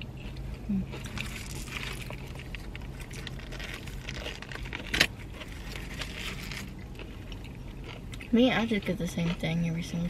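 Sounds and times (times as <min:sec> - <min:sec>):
soft chewing: 0:00.0 - 0:10.0
paper wrapper rustling: 0:01.1 - 0:06.7.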